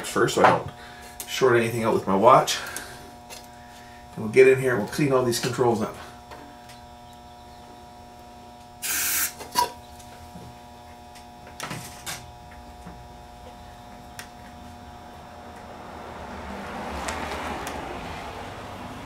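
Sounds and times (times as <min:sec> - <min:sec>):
faint steady hum: 0:00.0 - 0:16.8
aerosol spray hiss: 0:08.8 - 0:09.4.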